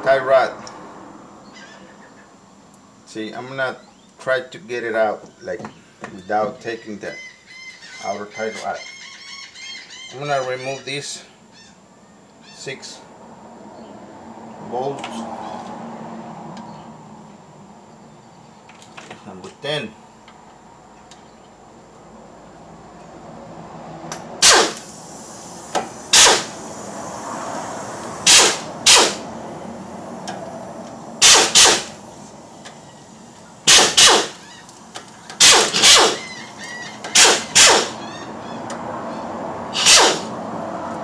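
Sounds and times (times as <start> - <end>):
power tool bursts on bolts: 24.4 - 26.6, 28.2 - 29.2, 31.2 - 32.0, 33.6 - 34.5, 35.4 - 36.4, 37.0 - 38.0, 39.8 - 40.3.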